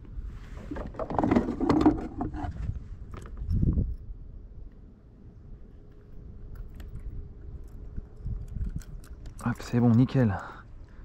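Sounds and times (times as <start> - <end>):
knocks and scrapes in plastic kayak: 0.4 - 2.8.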